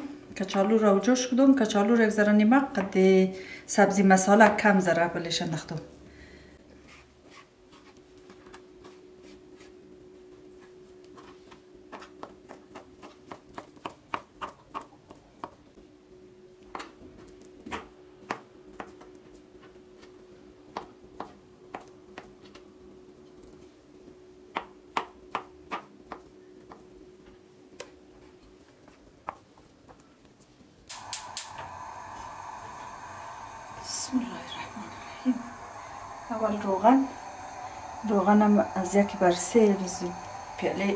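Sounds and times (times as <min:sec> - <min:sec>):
faint steady hum: 0:30.0 - 0:40.9.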